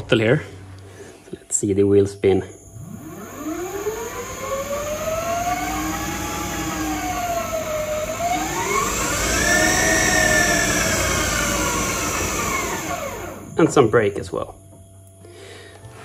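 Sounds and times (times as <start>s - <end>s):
high electrical tone: 1.6s - 15.2s
electric motor whining: 2.7s - 13.9s.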